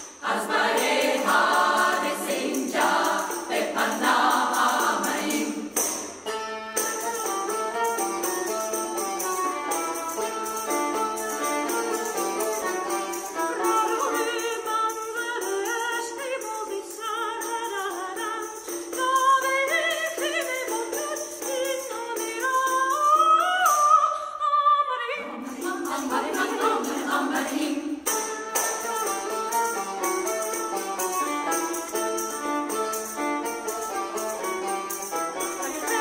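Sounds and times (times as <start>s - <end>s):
women's choir singing: 0.0s - 6.0s, 25.2s - 28.1s
hand percussion: 0.0s - 24.1s, 25.2s - 36.0s
viola: 0.0s - 36.0s
oud: 0.1s - 24.3s, 25.2s - 36.0s.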